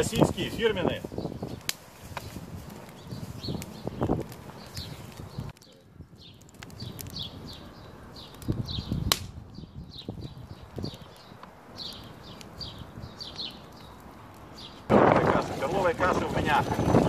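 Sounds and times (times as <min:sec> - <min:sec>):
small bird chirping: 0:02.2 - 0:14.8.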